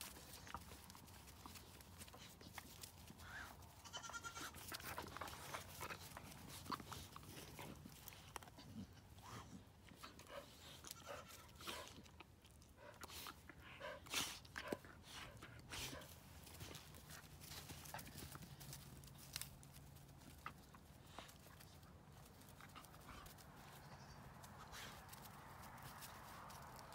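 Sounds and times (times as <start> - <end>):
puppies scuffling on grass: 0.0 - 12.6, 14.2 - 26.9
goat bleating: 3.8 - 4.8.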